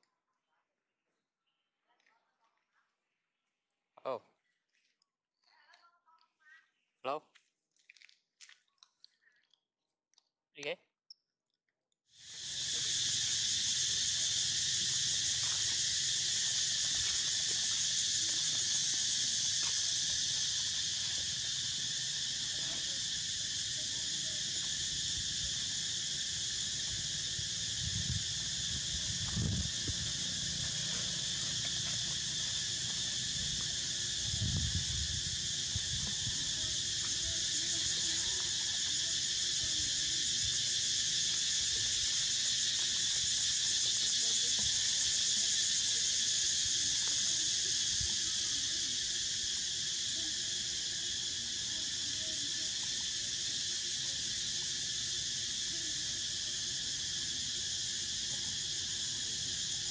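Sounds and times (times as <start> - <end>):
insects droning: 12.1 - 59.9.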